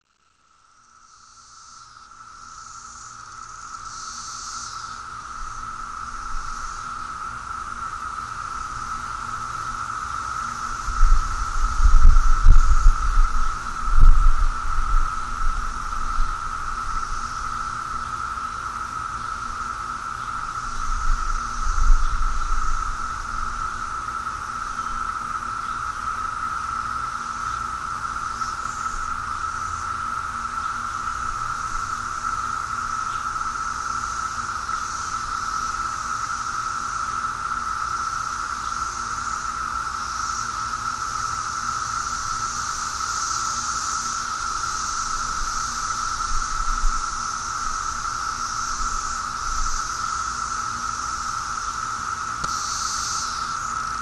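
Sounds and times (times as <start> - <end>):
cicadas buzzing: 0.0 - 54.0
faint high hiss: 0.0 - 54.0.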